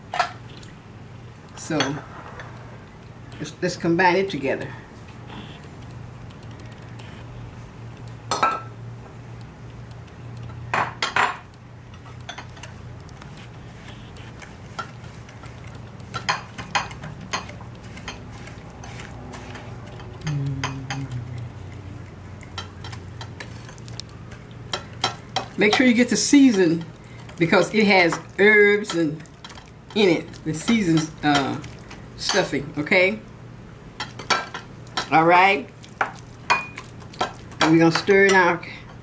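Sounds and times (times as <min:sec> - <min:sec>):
steady low hum: 0:00.0 - 0:37.7.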